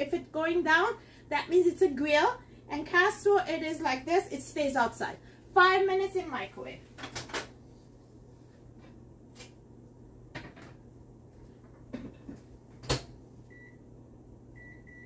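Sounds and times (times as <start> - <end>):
microwave keypad beeps: 13.5 - 13.8, 14.6 - 15.0.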